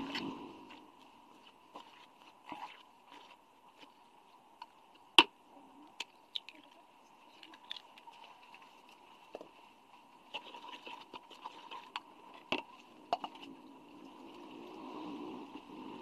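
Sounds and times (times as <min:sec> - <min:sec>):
egg cracking: 0:06.0 - 0:08.2.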